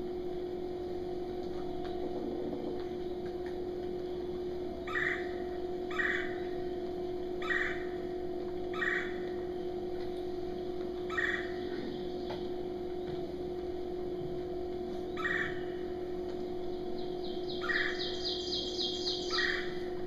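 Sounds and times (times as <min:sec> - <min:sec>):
electrical hum: 0:00.0 - 0:20.0
woodpecker calls over speakers: 0:04.9 - 0:06.4, 0:07.4 - 0:07.9, 0:08.7 - 0:09.2, 0:11.1 - 0:11.8, 0:15.1 - 0:15.8, 0:17.2 - 0:19.8.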